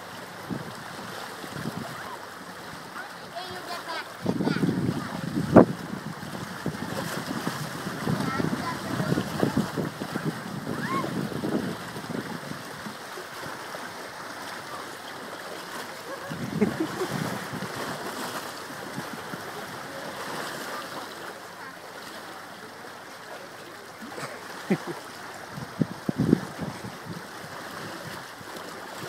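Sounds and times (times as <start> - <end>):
surf on a rocky shore: 0.0 - 29.0
wind on microphone: 1.5 - 2.1, 4.2 - 13.0, 16.2 - 19.7, 25.4 - 28.3
faint voices: 14.3 - 17.2, 18.9 - 25.4.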